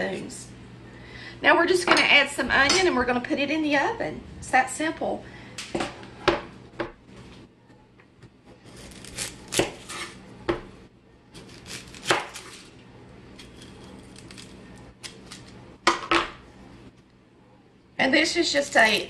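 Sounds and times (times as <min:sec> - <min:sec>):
knife cutting onion: 0:08.5 - 0:10.6, 0:11.3 - 0:12.7.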